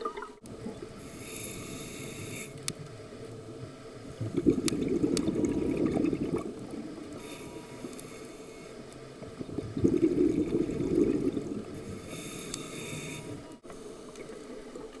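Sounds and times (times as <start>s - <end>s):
regulator bubbles burbling: 0.0s - 1.0s, 4.1s - 7.2s, 9.3s - 11.8s
hissing regulator inhalation: 1.0s - 2.8s, 7.1s - 13.5s.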